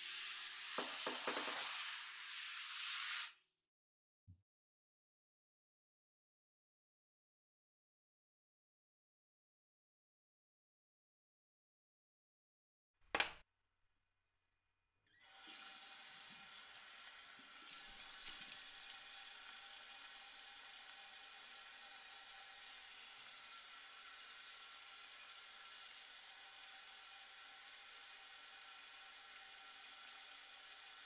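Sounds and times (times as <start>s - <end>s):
man washing his face: 0.1s - 3.3s
tap running into sink: 0.7s - 1.9s.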